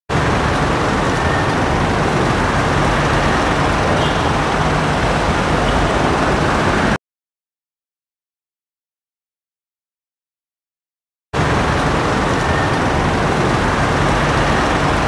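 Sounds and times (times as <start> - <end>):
road noise: 0.1 - 7.0, 11.4 - 15.0
diesel engine running: 0.2 - 7.0.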